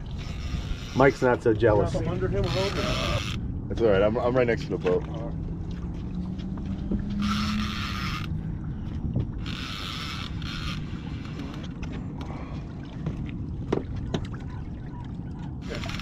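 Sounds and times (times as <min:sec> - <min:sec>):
steady low rumble: 0:00.0 - 0:16.0
fishing reel drag buzzing: 0:00.1 - 0:01.4, 0:02.4 - 0:03.4, 0:07.1 - 0:08.4, 0:09.4 - 0:11.7.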